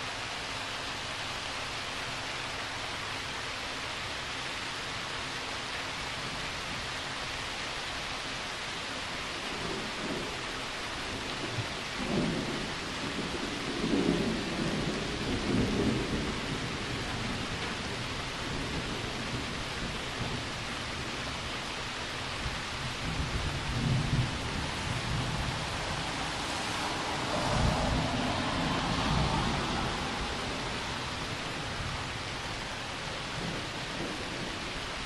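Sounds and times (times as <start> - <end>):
steady rain: 0.0 - 35.0
rolling thunder: 11.1 - 21.2, 22.4 - 34.9.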